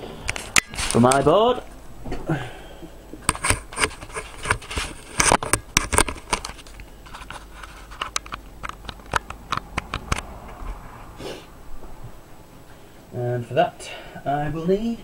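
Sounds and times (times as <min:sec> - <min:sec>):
handling clicks taps and rustling: 0:03.2 - 0:10.3.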